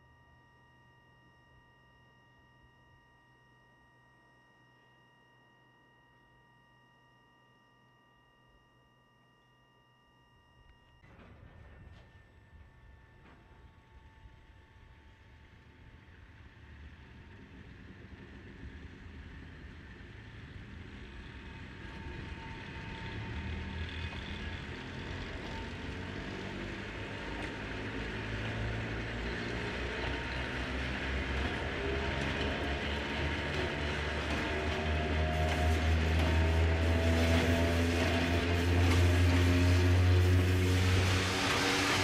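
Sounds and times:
electric locomotives rumbling: 11.1 - 42.0.

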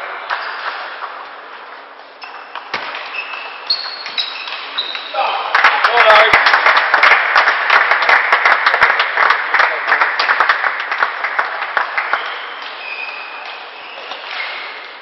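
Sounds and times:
crowd applauding: 5.2 - 12.8.

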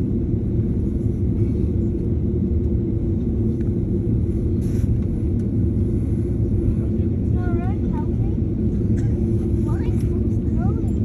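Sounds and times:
airliner cabin low rumble: 0.0 - 11.0.

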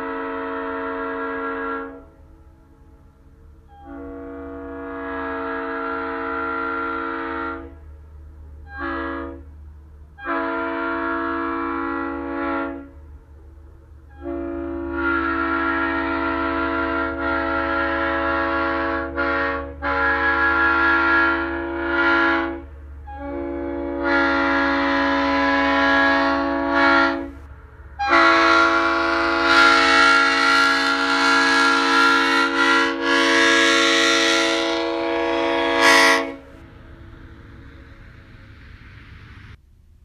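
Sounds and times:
locomotive air horn blasts: 0.0 - 7.9, 8.6 - 13.1, 14.0 - 39.6.

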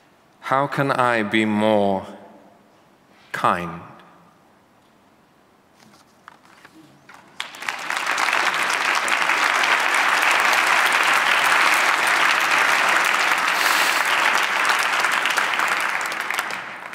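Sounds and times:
audience applauding: 7.1 - 16.9.

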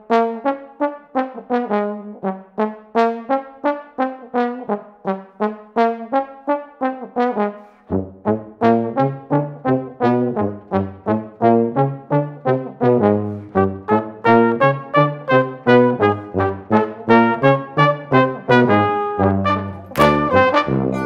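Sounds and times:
bass part: 19.2 - 21.0
instrumental music with detached notes: 19.2 - 21.0.

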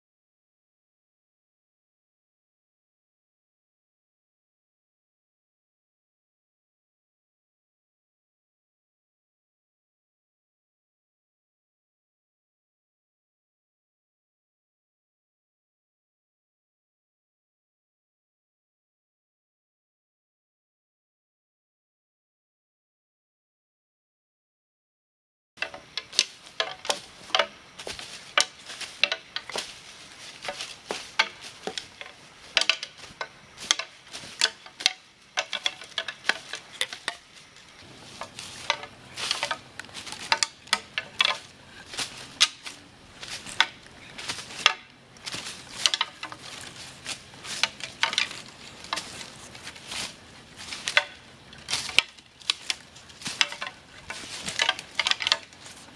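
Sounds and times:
leaves rustling: 25.6 - 55.9.

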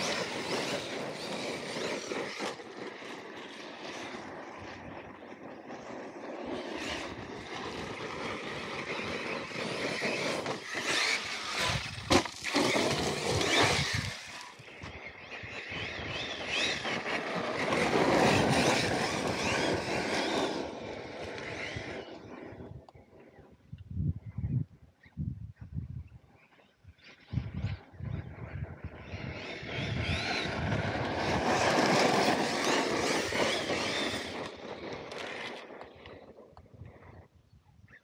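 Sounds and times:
electric motor whining: 0.0 - 5.0, 5.8 - 23.0, 28.9 - 36.2
tyres crunching through gravel: 7.6 - 14.6.

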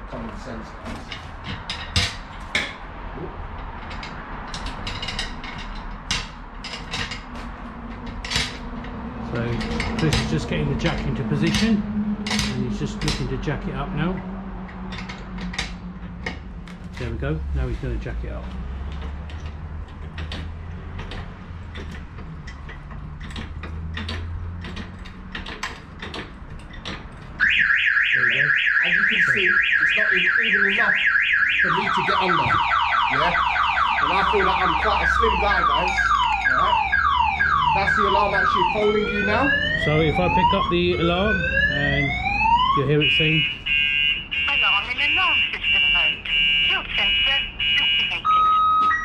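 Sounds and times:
metallic clicks and knocks: 0.2 - 17.4, 18.2 - 30.0
car alarm siren warbling: 27.3 - 49.0.

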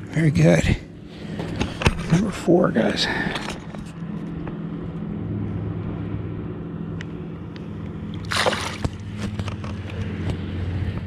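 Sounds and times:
steady low hum: 0.0 - 11.0
fish splashing into water: 8.2 - 9.1
water sloshing against kayak: 8.2 - 9.4.

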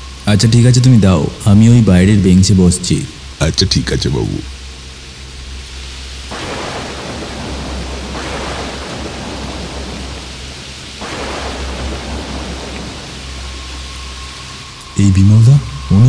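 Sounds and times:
heavy rain: 0.0 - 16.0
low rumble of thunder: 6.3 - 16.0.

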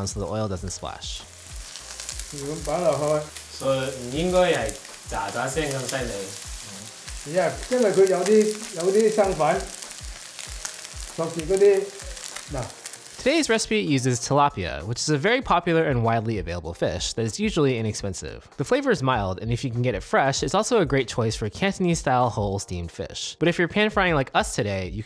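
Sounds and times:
fish sizzling in hot oil: 0.0 - 14.1.

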